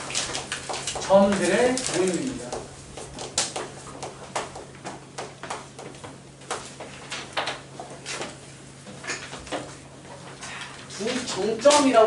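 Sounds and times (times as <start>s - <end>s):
footsteps on classroom floor: 0.0s - 8.4s.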